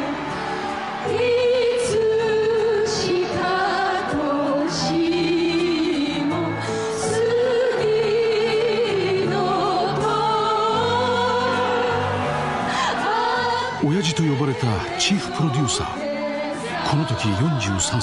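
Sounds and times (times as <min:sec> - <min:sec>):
woman singing: 0:00.0 - 0:18.0.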